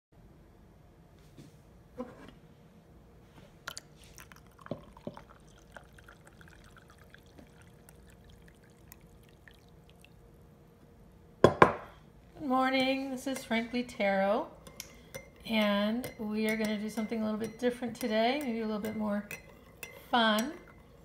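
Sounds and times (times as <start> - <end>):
tea pouring into mug: 3.7 - 10.2
spoon clinking on mug: 14.6 - 21.0.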